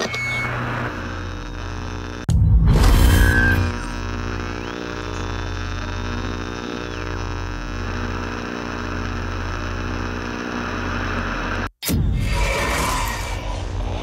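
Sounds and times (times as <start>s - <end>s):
low electric hum: 2.8s - 11.6s.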